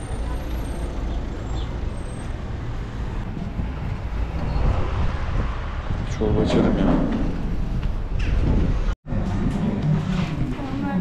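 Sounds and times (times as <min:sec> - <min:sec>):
road vehicle low rumble: 0:00.0 - 0:11.0.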